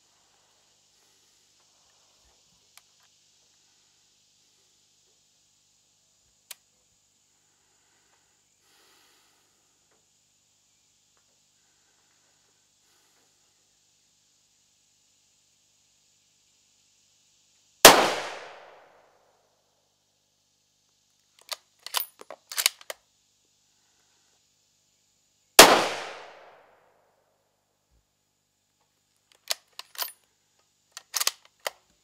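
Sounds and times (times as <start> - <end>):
rifle shots: 17.9 - 18.9, 25.6 - 26.6
rifle bolt clicking and clacking: 21.4 - 23.0, 29.3 - 30.2, 31.0 - 31.8.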